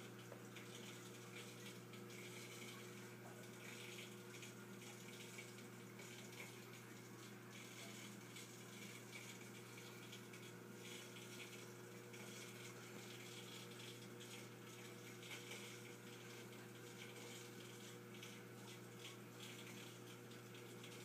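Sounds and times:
aquarium filter hum: 0.0s - 21.0s
bubbling water: 0.0s - 21.0s.

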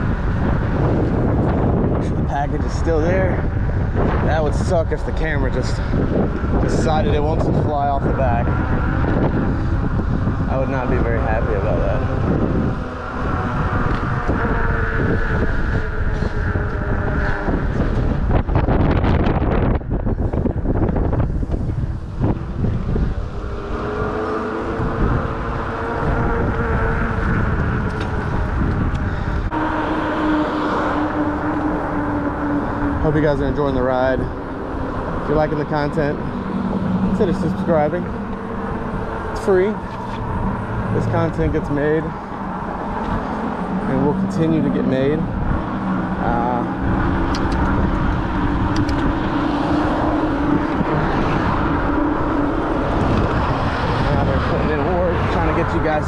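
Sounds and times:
electric motor whine: 0.0s - 56.0s
road traffic: 0.0s - 56.0s
steady low hum: 0.0s - 56.0s
wind rumbling on microphone: 0.0s - 56.0s.

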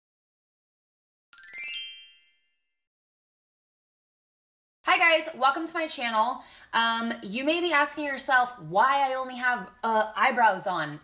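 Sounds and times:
bell-like chime ringing: 1.3s - 2.8s.

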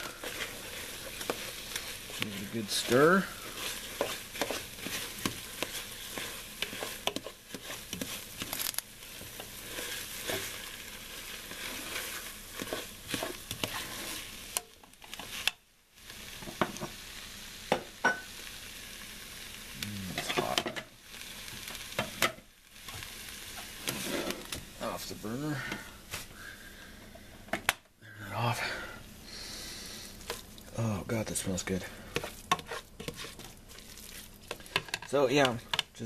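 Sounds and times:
spoon scraping pot: 0.0s - 15.5s, 32.1s - 35.9s
food sizzling: 0.0s - 36.0s.

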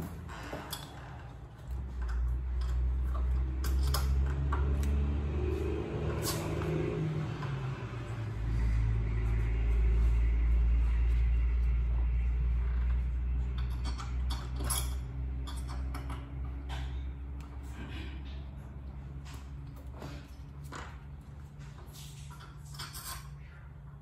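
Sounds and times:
low rumble: 4.8s - 20.5s.

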